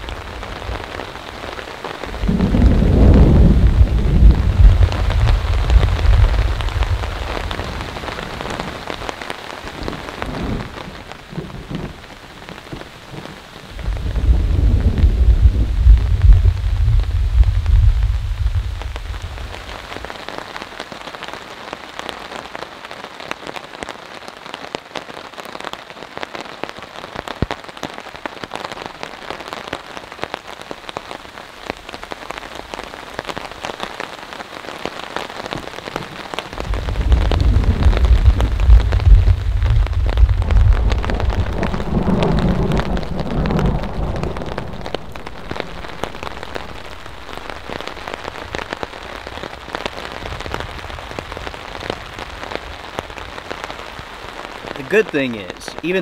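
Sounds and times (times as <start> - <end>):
thunder rumbling: 0.0 - 20.4, 35.5 - 55.0
rain falling on a tarp: 0.0 - 56.0.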